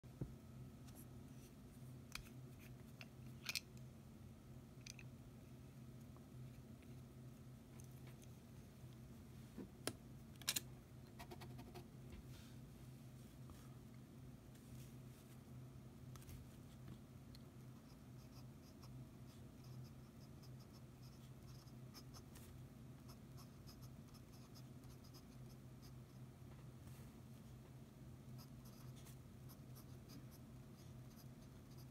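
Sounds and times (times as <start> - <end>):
faint low hum: 0.0 - 31.9
fountain pen scratching on paper: 23.1 - 26.0.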